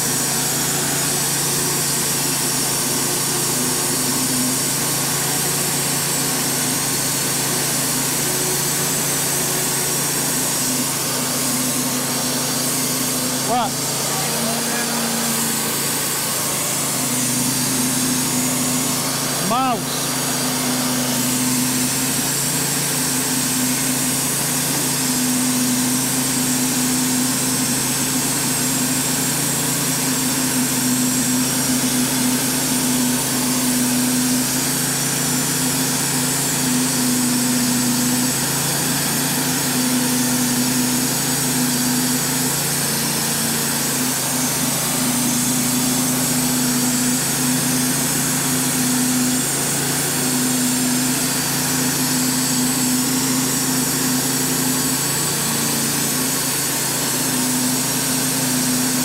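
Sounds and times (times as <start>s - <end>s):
sawmill engine humming: 0.0s - 59.0s.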